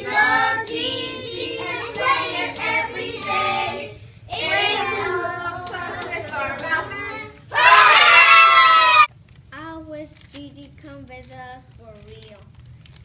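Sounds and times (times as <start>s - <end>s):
children singing in unison: 0.0s - 7.4s.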